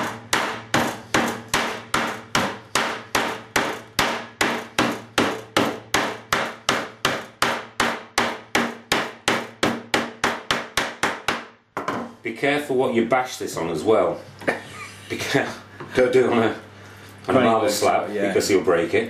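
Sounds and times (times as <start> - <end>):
rolling pin knocking on board: 0.0 - 12.1.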